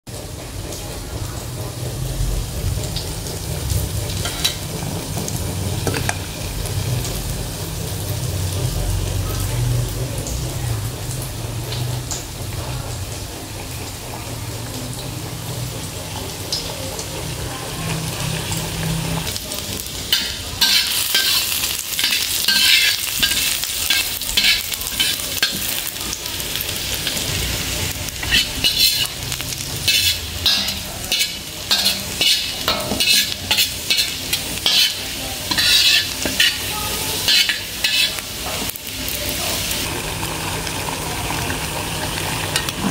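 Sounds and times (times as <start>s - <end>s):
shallots sizzling in hot oil: 0.1s - 42.9s
water boiling in a saucepan: 0.1s - 42.9s
spatula stirring in a wok: 15.5s - 39.9s.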